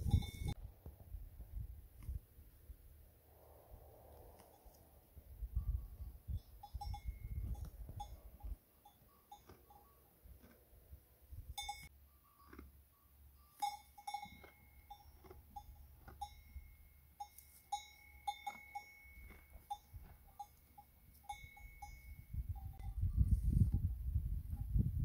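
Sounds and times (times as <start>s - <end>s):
livestock bells clinking: 0.0s - 0.6s, 5.6s - 10.5s, 11.3s - 23.4s.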